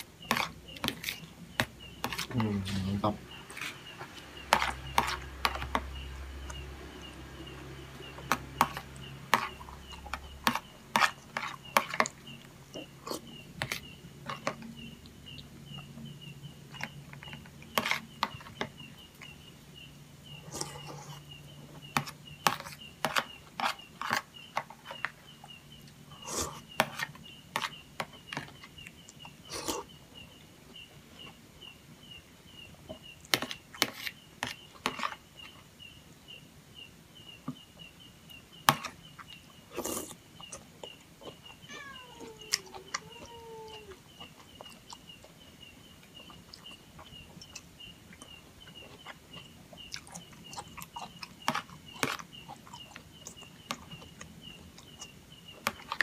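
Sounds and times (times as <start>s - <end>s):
spoon scraping plastic plate: 0.0s - 6.0s
eating sounds: 28.4s - 30.0s, 38.8s - 56.0s
faint high chirp: 40.4s - 44.9s.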